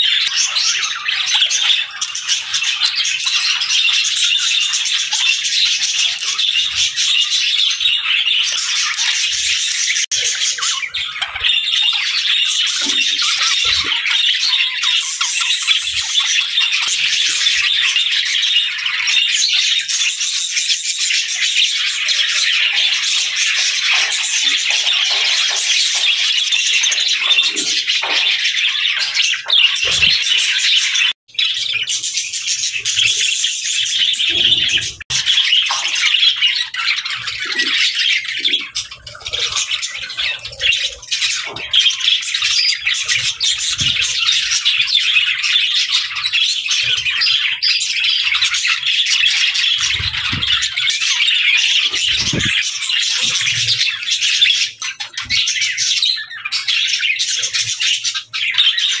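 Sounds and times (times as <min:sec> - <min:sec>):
budgerigars chattering: 0:21.4 - 0:59.0.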